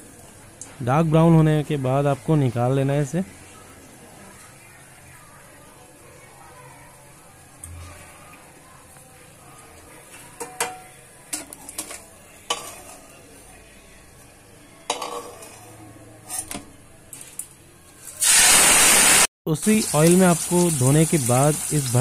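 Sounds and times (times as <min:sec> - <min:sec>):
metal utensil clinking on pan: 0:14.9 - 0:15.6
loud sizzle in hot oil: 0:18.0 - 0:22.0.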